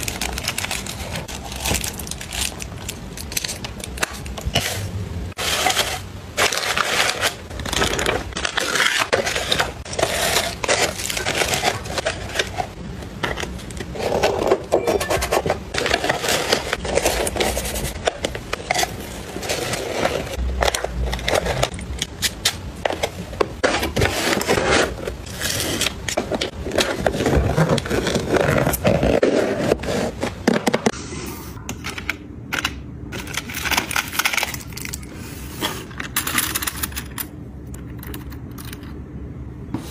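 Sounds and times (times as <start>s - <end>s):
paper rustling and crinkling: 0.0s - 30.9s.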